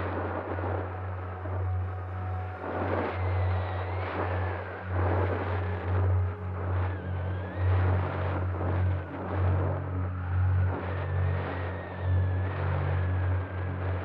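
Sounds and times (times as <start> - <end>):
wind rush: 0.0 - 10.0.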